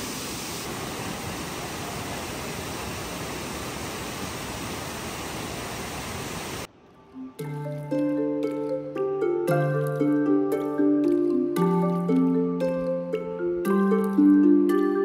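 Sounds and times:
waterfall rushing: 0.0s - 6.7s.

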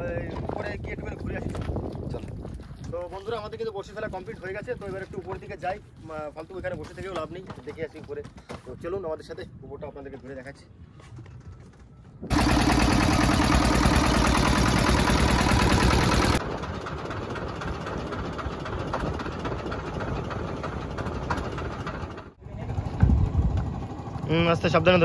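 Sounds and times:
boat engine running: 12.3s - 24.3s.

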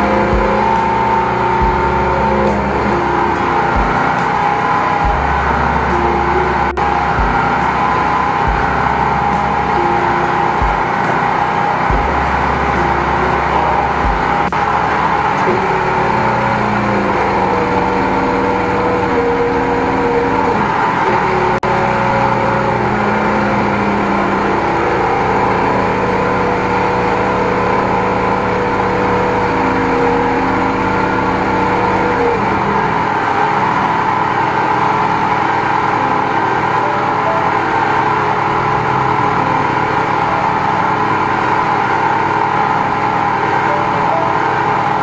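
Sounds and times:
sewer jetting machine running: 0.0s - 45.0s.

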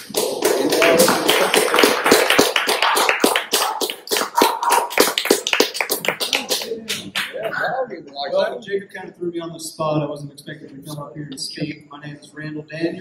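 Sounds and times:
crowd applauding: 0.0s - 7.6s.

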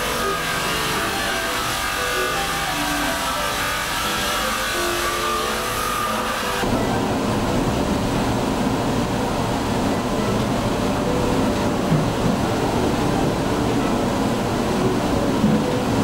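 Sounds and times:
rotary tool whining against metal: 0.0s - 6.7s
mechanical rumble and hiss: 0.0s - 16.0s.

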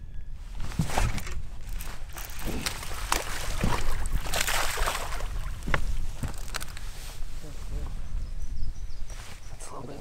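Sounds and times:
fish splashing in water: 2.2s - 5.6s.

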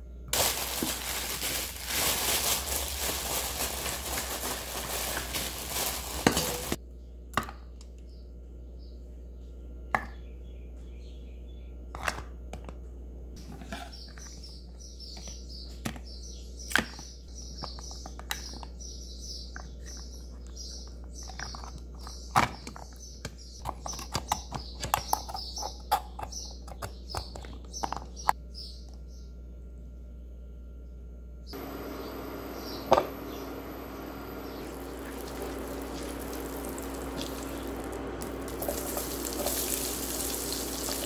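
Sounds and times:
bird chirping: 13.8s - 29.4s, 31.5s - 41.0s.

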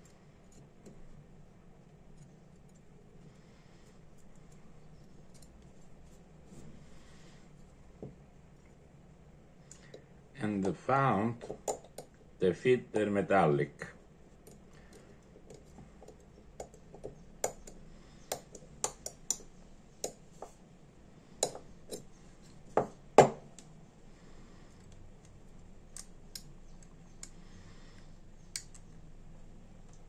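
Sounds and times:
metal pick clicking and scraping: 3.8s - 5.8s.

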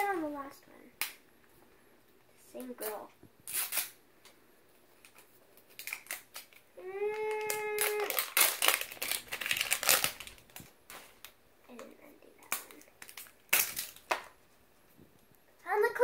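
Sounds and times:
plastic wrapping crinkling and tearing: 2.6s - 4.0s, 5.0s - 14.4s.

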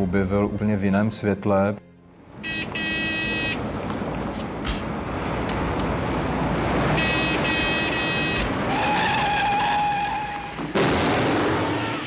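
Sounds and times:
car engine and road noise: 1.9s - 11.4s
tyres and brakes squealing: 7.2s - 10.7s.

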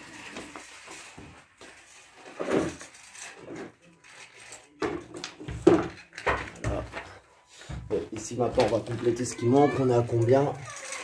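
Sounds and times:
hard objects knocking: 4.8s - 7.1s.

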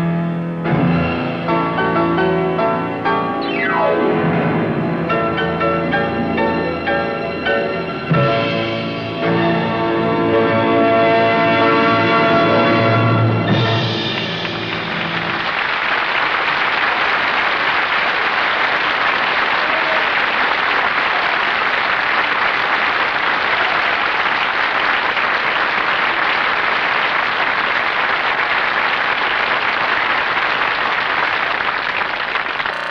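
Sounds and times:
piano and orchestra chord: 0.0s - 15.5s
audience applauding: 13.5s - 32.9s.

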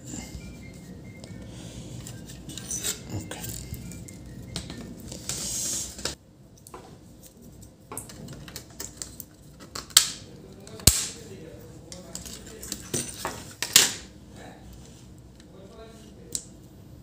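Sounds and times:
hardware parts clicking and clattering: 7.9s - 10.9s, 11.9s - 14.0s.

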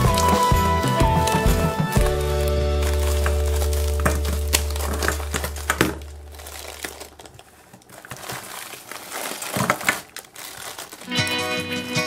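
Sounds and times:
beads spilling into bowl: 0.0s - 7.2s
water beads clicking: 0.0s - 7.4s
plastic glove crinkling: 0.0s - 11.8s.

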